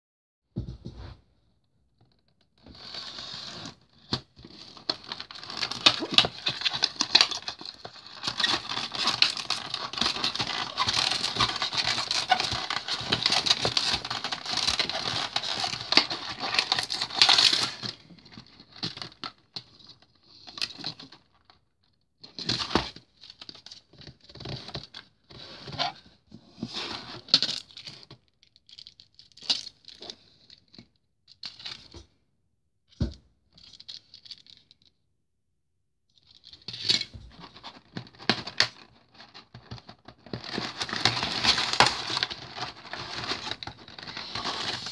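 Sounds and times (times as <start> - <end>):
plastic packaging crinkling: 4.5 - 17.8, 37.9 - 44.9
plastic tray rustles and clicks: 4.7 - 17.5.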